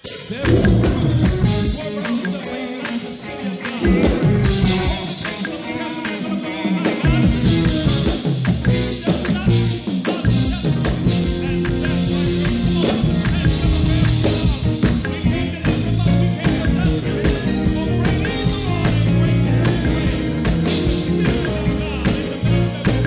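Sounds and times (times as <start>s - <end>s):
drum kit fast beat: 0.0s - 23.0s
keyboard chords: 0.3s - 2.1s, 3.4s - 6.2s
organ playing: 0.3s - 2.2s, 3.5s - 6.4s, 10.6s - 23.0s
electric bass: 0.4s - 1.8s, 3.9s - 5.1s, 10.3s - 23.0s.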